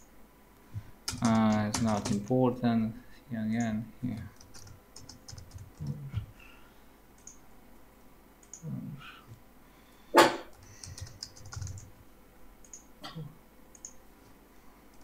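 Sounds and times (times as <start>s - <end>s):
keyboard typing: 1.0s - 2.3s, 3.6s - 6.3s, 7.2s - 7.4s, 10.5s - 12.0s, 13.7s - 14.0s.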